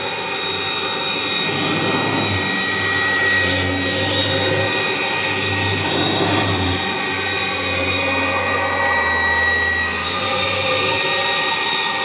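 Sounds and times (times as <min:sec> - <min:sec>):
vacuum cleaner running: 0:00.0 - 0:12.0.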